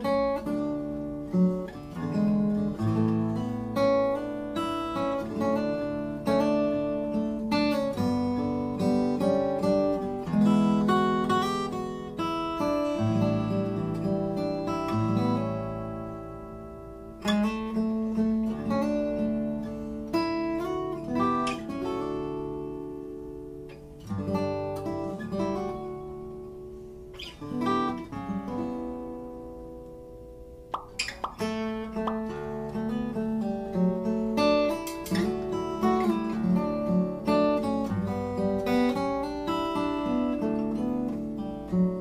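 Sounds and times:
acoustic guitar music: 0.0 - 42.0.

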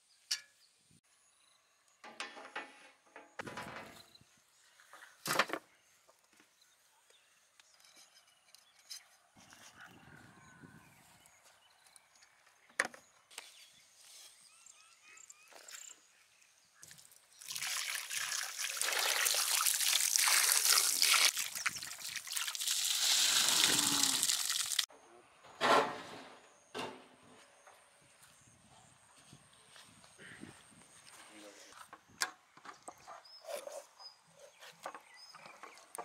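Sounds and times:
water splashing onto meat: 17.4 - 24.9.

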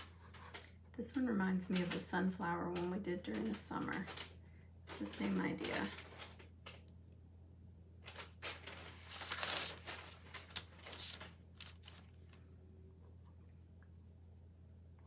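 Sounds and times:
steady low hum: 0.0 - 15.0
hands rustling on paper: 8.1 - 12.4.

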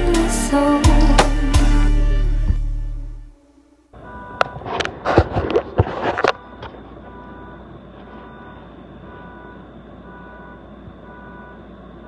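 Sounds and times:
low steady hum: 2.4 - 12.0
reversing alarm beeping: 3.9 - 12.0.

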